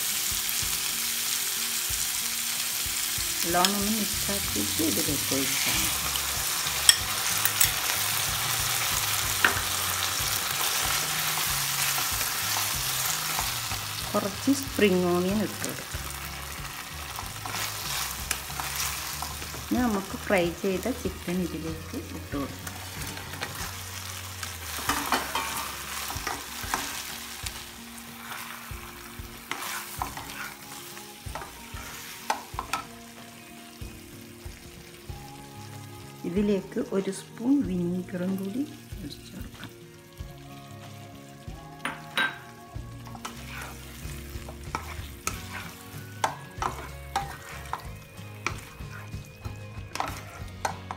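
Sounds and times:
sauce sizzling in a wok: 0:00.0 - 0:50.9
metal spoon clinking: 0:06.8 - 0:07.9, 0:24.9 - 0:25.6, 0:49.9 - 0:50.9
wooden spatula scraping a pan: 0:17.1 - 0:20.1, 0:28.0 - 0:32.9, 0:43.1 - 0:50.9.

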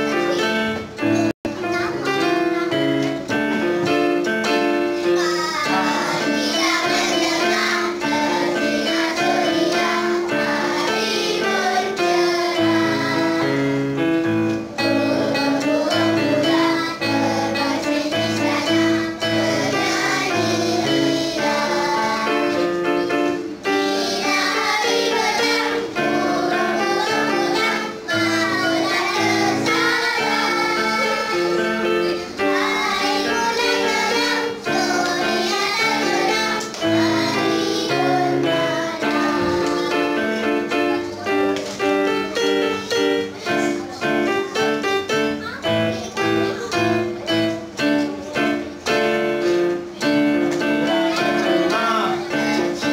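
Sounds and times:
electronic keyboard: 0:00.0 - 0:52.9
children singing: 0:05.1 - 0:14.1, 0:14.8 - 0:41.4, 0:50.5 - 0:52.9.

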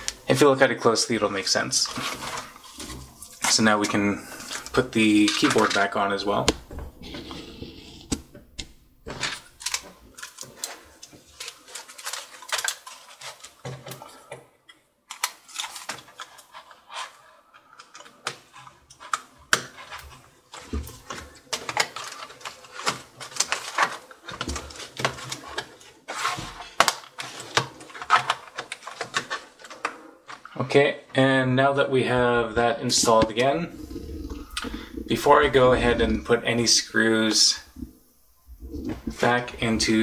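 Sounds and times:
plastic keyboard clicks and rattles: 0:09.2 - 0:14.3, 0:15.1 - 0:25.9, 0:26.7 - 0:30.5.

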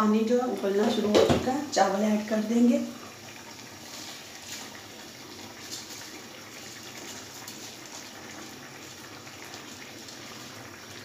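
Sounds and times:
water boiling in a pan: 0:00.0 - 0:11.0
rice poured into water: 0:03.0 - 0:11.0.

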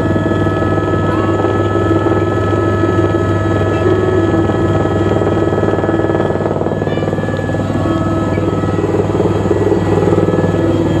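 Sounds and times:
helicopter engine whine: 0:00.0 - 0:11.0
helicopter rotor rumble: 0:00.0 - 0:11.0.

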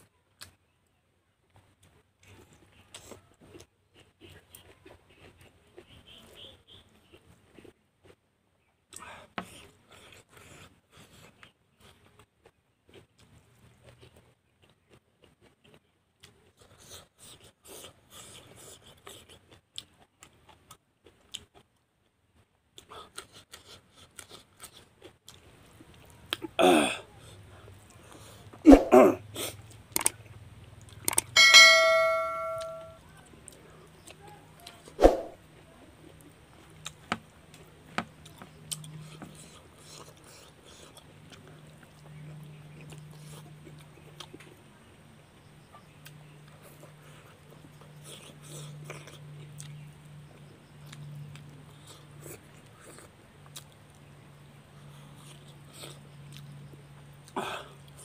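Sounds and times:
chewing and lip smacks: 0:01.5 - 0:08.2, 0:08.9 - 0:21.8, 0:22.7 - 0:26.5, 0:29.4 - 0:31.3, 0:35.6 - 0:58.0
bell-like ding: 0:31.4 - 0:33.0.

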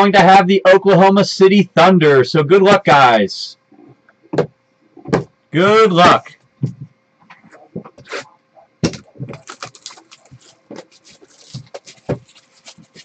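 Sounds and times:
cardboard packaging crinkling: 0:08.9 - 0:13.0.

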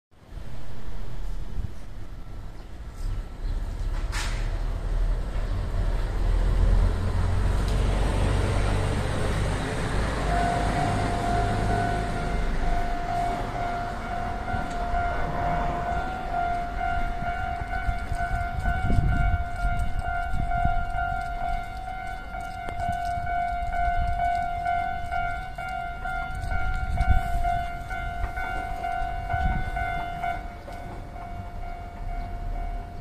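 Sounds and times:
level crossing alarm ringing: 0:09.4 - 0:33.0.

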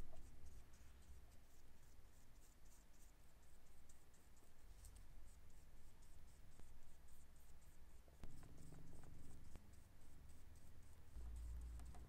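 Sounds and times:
paintbrush strokes on paper: 0:00.0 - 0:12.0.

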